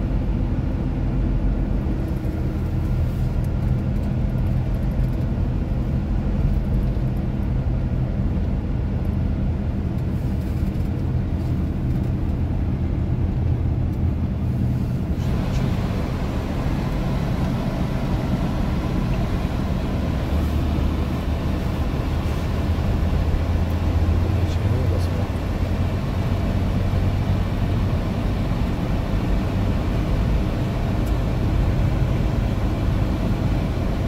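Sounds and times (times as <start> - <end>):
tyres on wet road: 0.0 - 9.2, 13.3 - 34.0
engine drone: 0.0 - 34.0.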